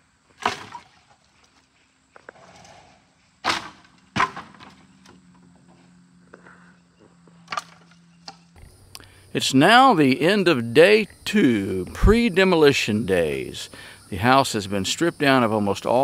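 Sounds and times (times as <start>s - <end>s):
lumber knocks: 3.5s - 4.8s.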